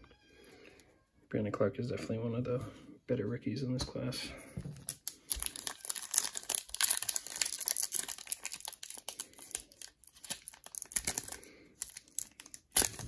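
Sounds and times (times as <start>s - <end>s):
foil wrapper crinkling: 4.8s - 13.0s.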